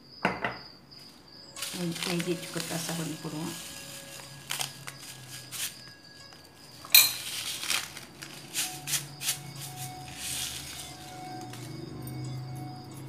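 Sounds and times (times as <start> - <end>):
metal spoon clinking on glass bowl: 5.6 - 7.6.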